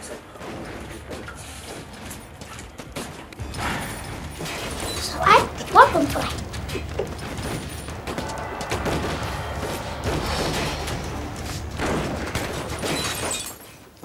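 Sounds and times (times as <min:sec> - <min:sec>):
action film music: 0:00.4 - 0:13.4
rapid gunfire: 0:03.0 - 0:13.4.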